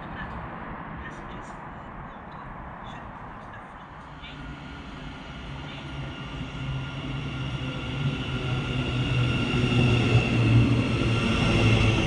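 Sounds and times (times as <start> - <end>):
train low hum: 0.0 - 12.0
train motor whine: 4.1 - 12.0.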